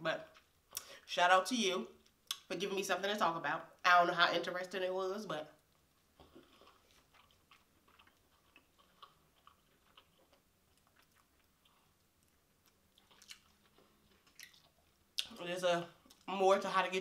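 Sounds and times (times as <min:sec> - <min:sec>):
wet chewing mouth clicks: 0:05.6 - 0:15.4.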